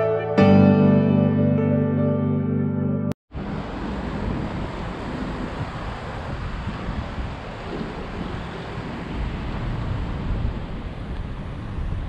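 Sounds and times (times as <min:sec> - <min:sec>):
sea surf rushing: 0:03.3 - 0:12.0
wind buffeting microphone: 0:03.4 - 0:12.0.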